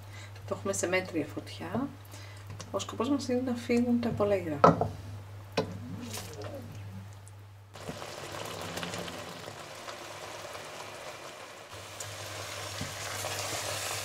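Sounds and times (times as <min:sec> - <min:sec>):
vegetable mixture sizzling in a pan: 0:07.8 - 0:14.0.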